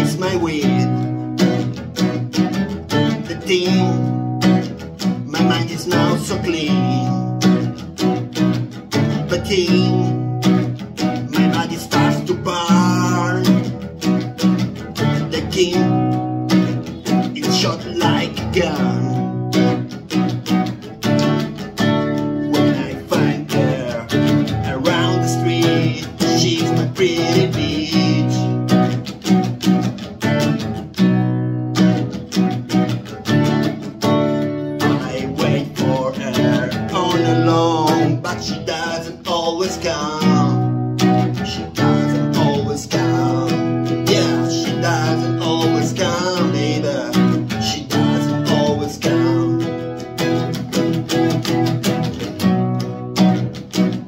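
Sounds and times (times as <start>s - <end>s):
man singing: 0.0s - 1.7s, 2.9s - 7.8s, 9.1s - 13.9s, 15.0s - 19.8s, 22.4s - 29.0s, 34.7s - 50.5s
acoustic guitar strumming: 0.0s - 54.0s.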